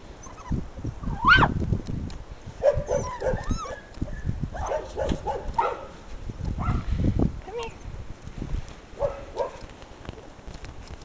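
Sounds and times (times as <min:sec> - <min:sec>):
puppies yipping and whining: 0:00.2 - 0:01.5, 0:02.8 - 0:04.7.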